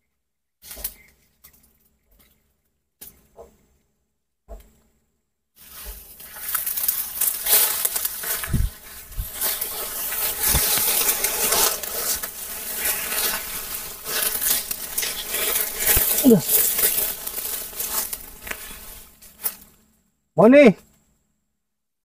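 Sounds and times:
rustling: 5.6 - 20.1
insects buzzing: 6.0 - 19.8.

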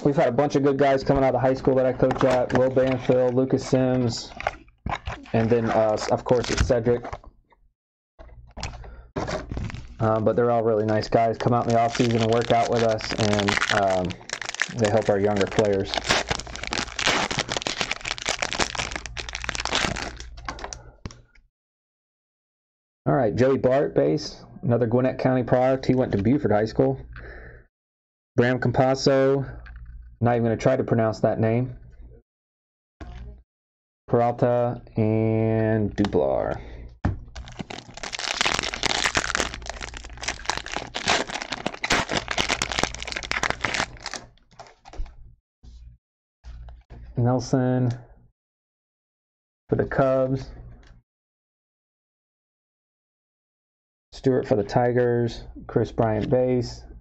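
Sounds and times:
cards and foil packs crinkling: 1.0 - 7.0, 9.2 - 20.8, 37.4 - 45.1.

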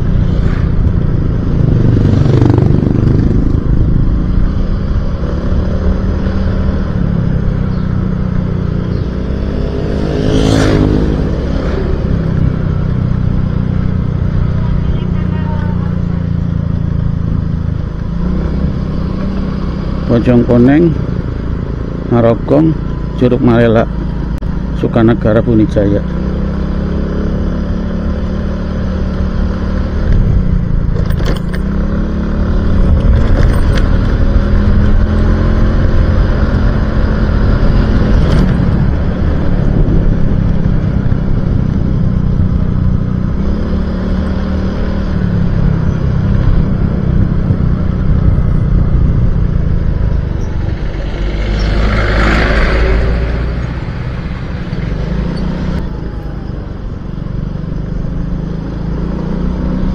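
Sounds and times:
low wind rumble: 0.0 - 59.9
motorcycle engine running: 0.0 - 59.9.

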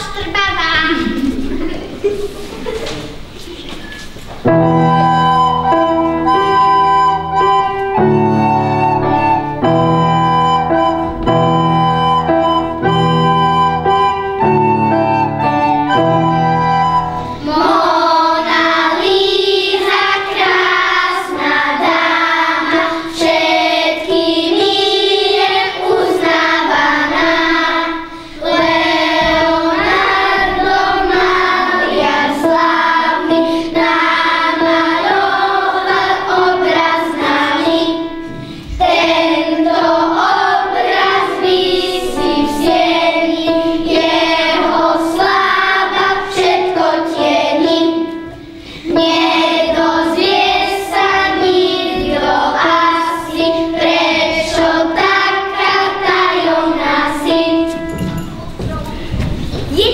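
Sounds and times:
children singing: 4.5 - 59.1.

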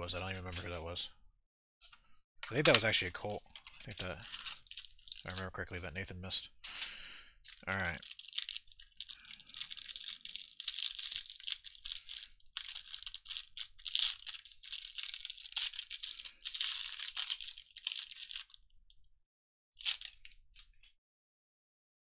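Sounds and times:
plastic wrapper crinkling: 2.5 - 5.6, 7.4 - 18.7, 19.8 - 20.9.

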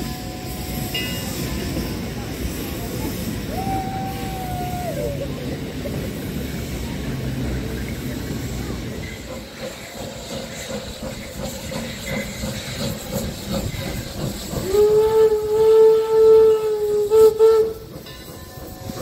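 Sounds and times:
steam locomotive hissing: 0.0 - 19.0
steam whistle: 3.3 - 5.2, 14.6 - 17.9.

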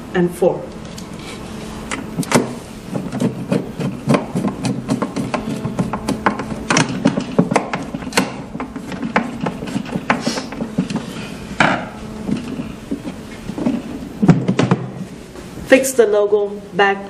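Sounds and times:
screwdriver rasp: 2.3 - 7.2.

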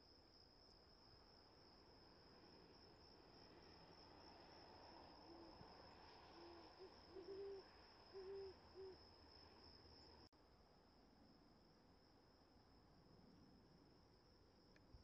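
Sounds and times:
cricket chorus: 0.0 - 15.0
owl hooting: 6.3 - 9.0.

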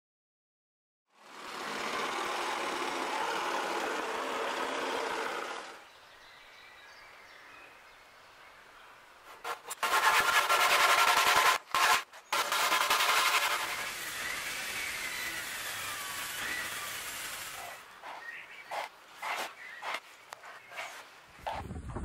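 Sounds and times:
handsaw rasping through wood: 9.3 - 21.6.

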